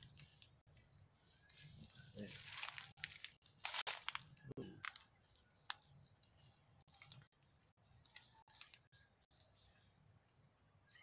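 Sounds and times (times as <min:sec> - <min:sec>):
faint clicks and ticks: 0:04.1 - 0:09.5.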